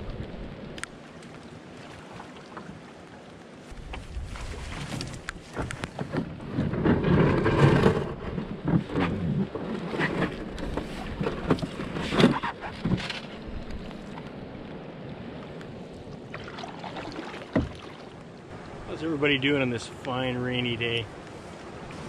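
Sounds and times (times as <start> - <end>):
water and paddle sounds: 0.0 - 22.0
knocks and thumps against hull: 3.8 - 14.2, 16.3 - 18.0
hull scraping over stones: 3.9 - 14.0.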